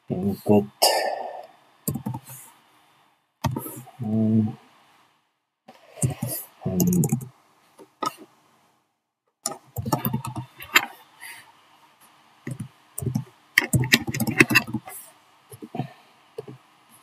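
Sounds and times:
keyboard keys clicking: 1.9s - 2.2s, 6.0s - 7.3s, 12.5s - 14.9s.

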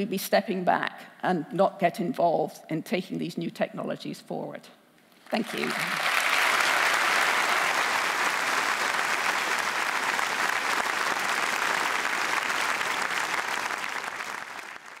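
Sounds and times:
audience applauding: 5.3s - 15.0s.

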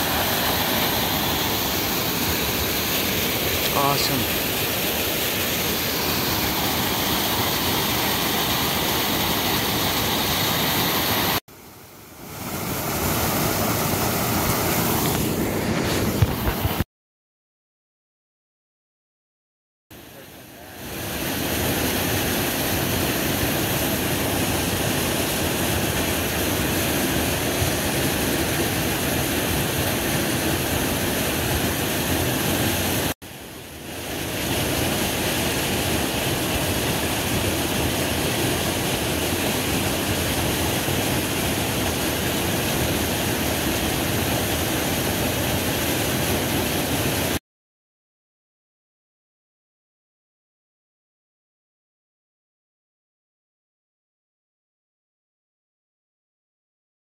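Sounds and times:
mountain creek rushing: 0.0s - 16.8s, 20.2s - 47.4s.

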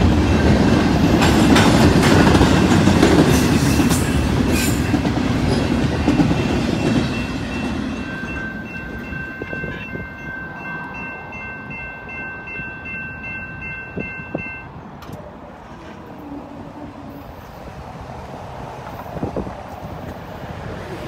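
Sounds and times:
railroad crossing bell ringing: 0.0s - 14.8s
freight train rumble: 0.0s - 21.0s.

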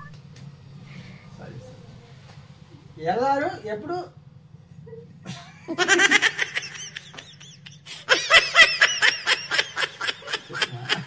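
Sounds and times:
people laughing: 5.3s - 11.0s.

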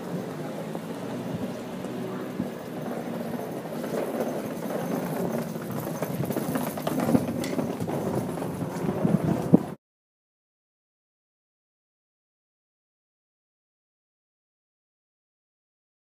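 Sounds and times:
footsteps on brick paving: 1.3s - 9.8s.

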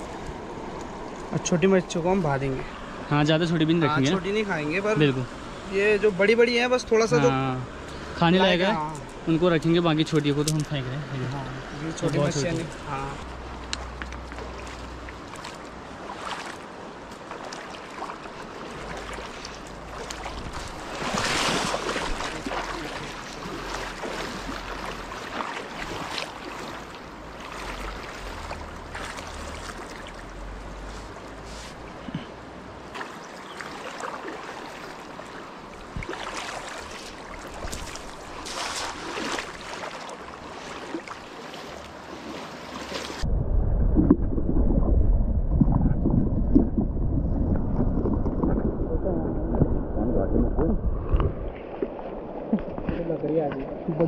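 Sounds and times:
river water rushing: 0.0s - 43.3s
wind buffeting microphone: 43.2s - 53.0s.

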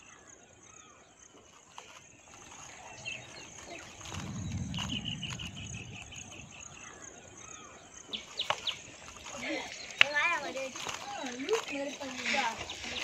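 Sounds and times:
bird ticking calls: 0.7s - 13.0s
low rumble: 2.8s - 7.5s.

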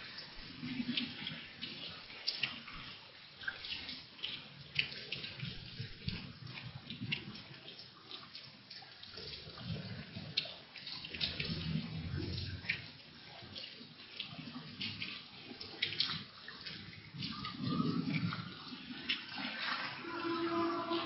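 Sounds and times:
raindrops ticking nearby: 0.0s - 21.0s
heavy rain: 19.4s - 21.0s.

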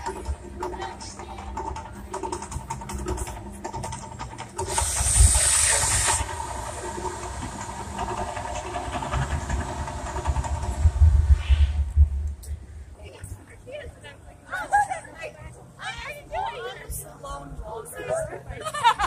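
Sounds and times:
gas fire jets hissing: 4.5s - 12.4s
low rumble: 6.2s - 13.0s.

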